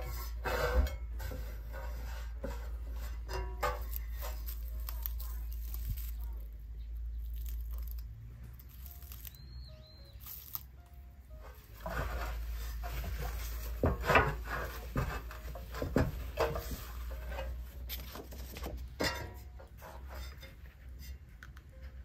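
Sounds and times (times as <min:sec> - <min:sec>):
tissue rustling on ceramic plate: 0:01.5 - 0:06.5, 0:11.4 - 0:18.6.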